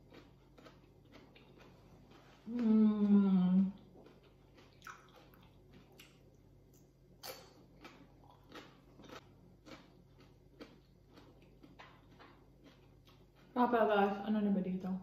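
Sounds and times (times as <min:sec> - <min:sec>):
chewing crunchy vegetable: 0:00.0 - 0:06.4, 0:07.2 - 0:13.9.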